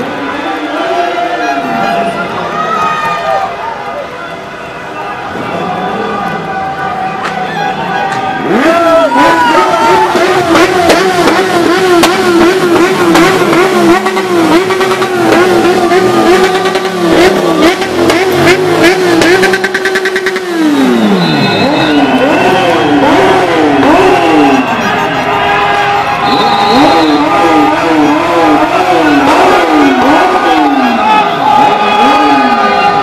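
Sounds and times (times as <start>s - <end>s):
engine revving: 8.1s - 25.4s, 26.1s - 33.0s.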